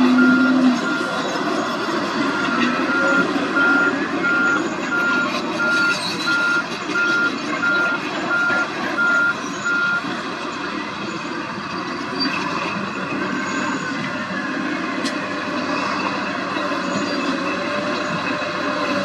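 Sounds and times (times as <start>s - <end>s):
reversing alarm beeping: 0.0s - 10.1s
diesel engine running: 0.0s - 19.0s.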